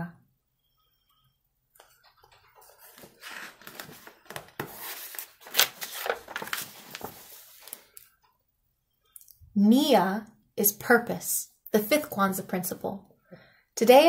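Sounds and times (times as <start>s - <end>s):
paper page rustling: 1.8s - 8.1s
page snapping: 3.3s - 7.8s.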